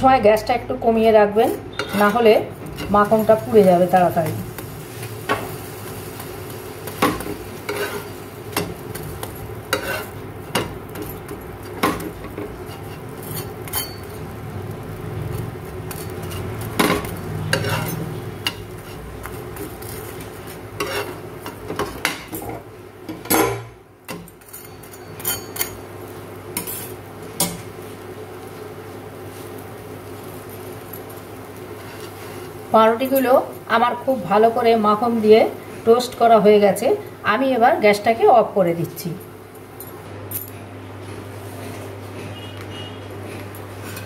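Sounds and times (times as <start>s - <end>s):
bread sizzling in pan: 0.9s - 38.5s
spatula scraping pan: 1.3s - 6.1s, 6.8s - 14.2s, 15.7s - 23.3s, 26.6s - 27.0s, 31.6s - 33.3s, 41.4s - 44.0s.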